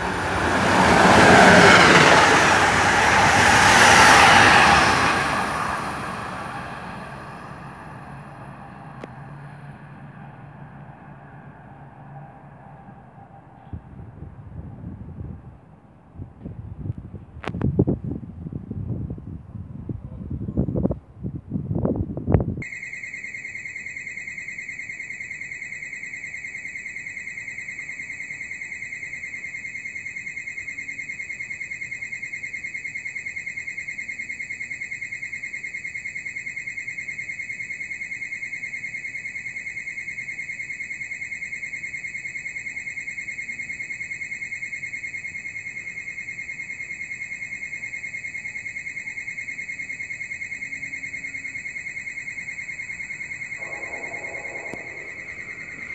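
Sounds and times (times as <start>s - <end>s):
high-pitched electronic alarm: 0.0s - 13.7s, 22.6s - 55.9s.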